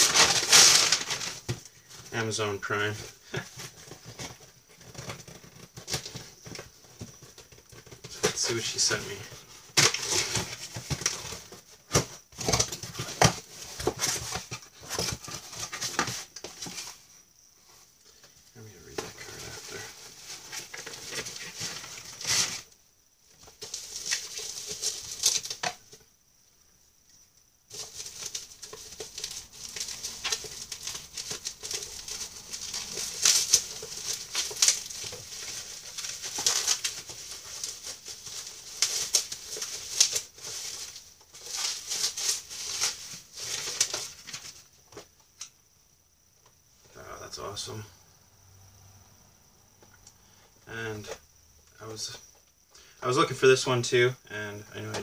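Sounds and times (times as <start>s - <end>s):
packaging crinkling and tearing: 0.0s - 1.7s, 7.8s - 16.8s, 27.7s - 44.6s.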